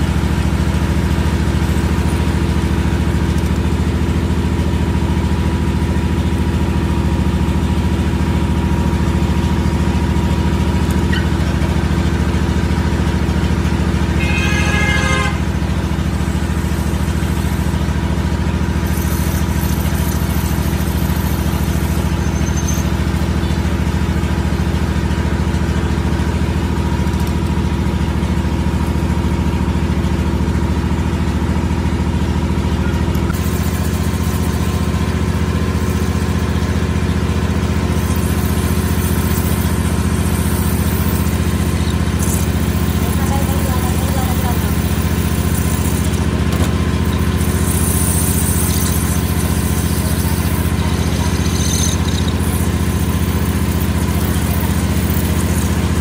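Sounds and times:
metal lathe humming: 0.0 - 23.9, 33.3 - 56.0
high squeal: 14.1 - 15.7, 18.8 - 23.6, 33.4 - 56.0.

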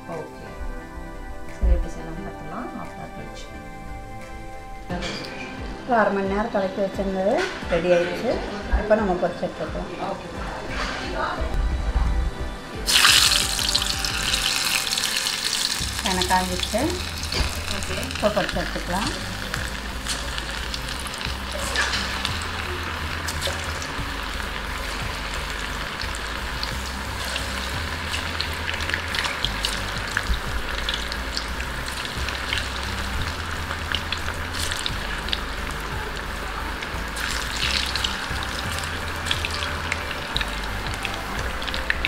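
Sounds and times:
chicken deep-frying in oil: 12.9 - 42.0.

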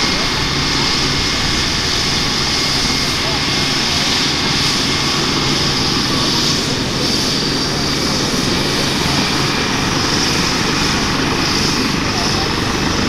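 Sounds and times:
helicopter rotor rumble: 0.0 - 13.0
helicopter turbine whine: 0.0 - 13.0.

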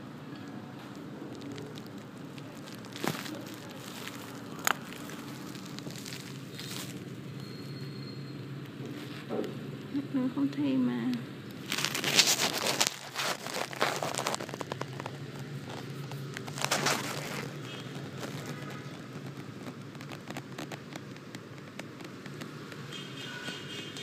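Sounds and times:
phone microphone handling noise: 11.5 - 22.9
scraping bursts: 11.6 - 21.3
small clicks: 13.6 - 23.6.

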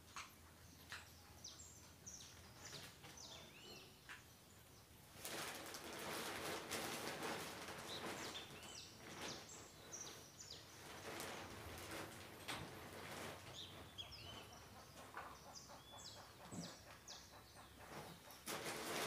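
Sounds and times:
small birds chirping: 0.0 - 19.0
plastic tarpaulin rustling: 5.1 - 13.8, 18.4 - 19.0.

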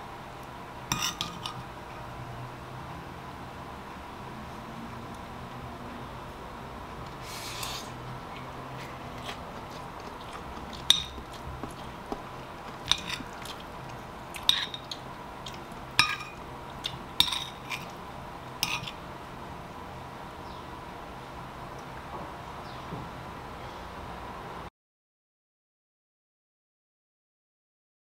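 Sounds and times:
spoon scraping ceramic bowl: 0.9 - 1.6, 12.8 - 13.7, 14.4 - 15.0, 16.0 - 18.0, 18.6 - 19.0
spoon clinking on bowl: 10.9 - 11.2, 12.8 - 13.3, 16.0 - 16.4, 17.2 - 17.9, 18.6 - 19.0.

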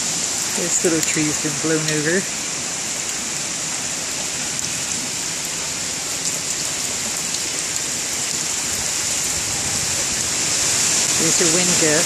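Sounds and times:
steady rain hiss: 0.0 - 12.0
raindrops ticking: 0.2 - 2.3, 4.5 - 8.8.

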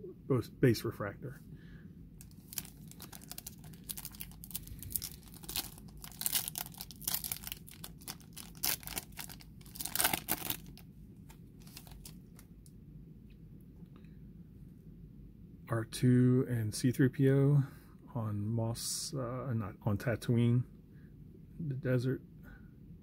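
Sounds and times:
foil wrapper tearing and crinkling: 2.2 - 10.8, 11.6 - 12.4.

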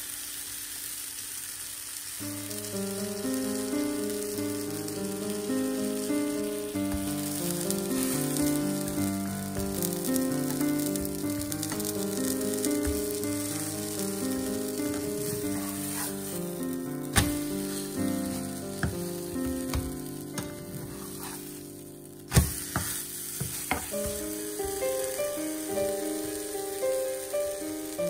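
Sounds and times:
pancake sizzling in oil: 0.0 - 28.0
soft piano music: 2.2 - 28.0
spatula knocking and scraping pan: 22.4 - 24.3.

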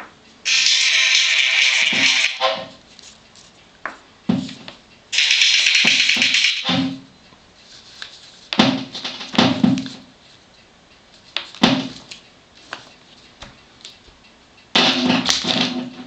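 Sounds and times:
disco music from phone: 0.5 - 2.4.

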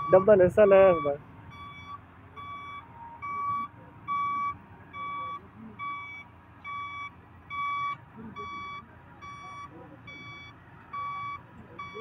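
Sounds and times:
faint low vehicle rumble: 0.0 - 12.0
truck reversing alarm beeping: 0.0 - 12.0.

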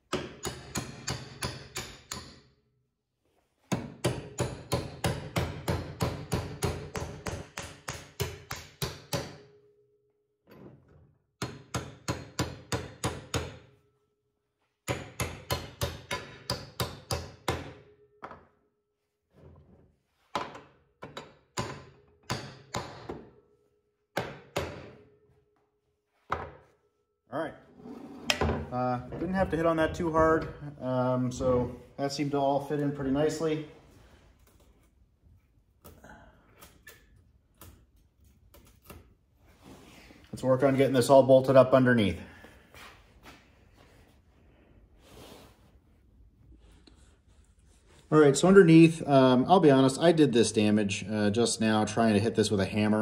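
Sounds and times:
hammer striking bolts: 0.0 - 2.5, 3.7 - 9.6, 11.4 - 13.7, 14.8 - 18.5, 20.4 - 23.4, 24.1 - 25.2.

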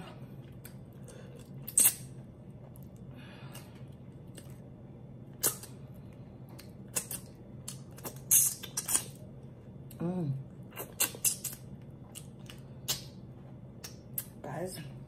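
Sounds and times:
faint low hum: 0.0 - 15.0
wet mouth smacks while eating: 0.6 - 2.2, 5.3 - 5.8, 6.6 - 9.2, 10.7 - 13.2.

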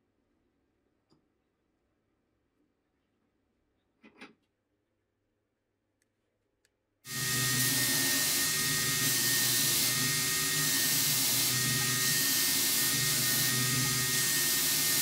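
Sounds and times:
belt grinder sanding hiss: 7.1 - 15.0.

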